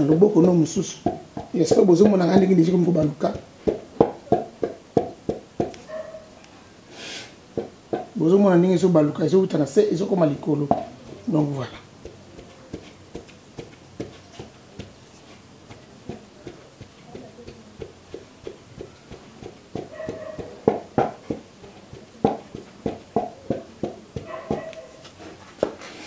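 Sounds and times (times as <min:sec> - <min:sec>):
wooden pestle pounding in mortar: 0:00.0 - 0:05.9, 0:07.5 - 0:08.5, 0:10.0 - 0:25.8.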